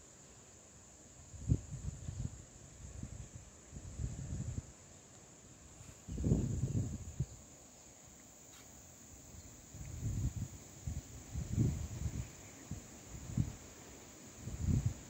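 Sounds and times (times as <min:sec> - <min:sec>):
wind buffeting microphone: 0:01.4 - 0:04.7, 0:06.0 - 0:07.4, 0:09.7 - 0:13.7, 0:14.4 - 0:15.0.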